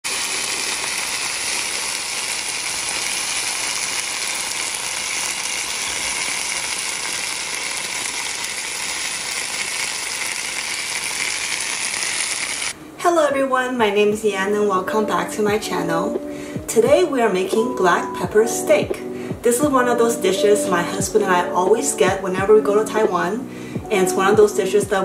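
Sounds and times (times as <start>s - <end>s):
sauce and steak sizzling: 0.0s - 12.8s.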